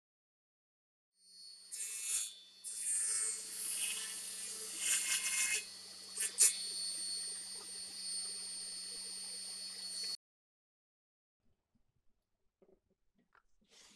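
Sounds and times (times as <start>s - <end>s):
table saw whining: 1.3s - 10.2s
saw cutting wood: 1.6s - 7.6s.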